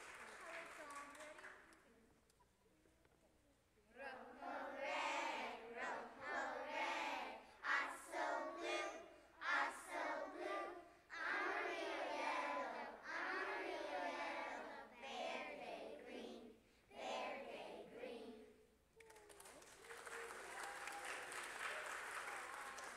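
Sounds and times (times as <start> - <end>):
children singing together: 4.0 - 18.5.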